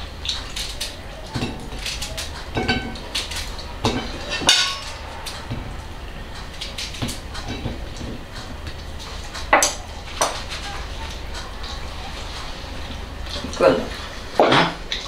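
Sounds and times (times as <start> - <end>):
knife and plates clinking: 0.3 - 10.8.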